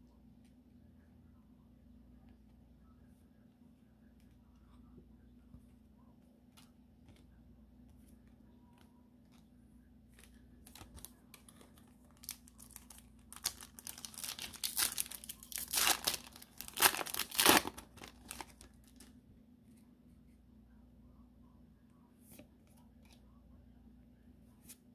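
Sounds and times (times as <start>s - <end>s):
foil wrapper crinkling: 10.2s - 19.1s.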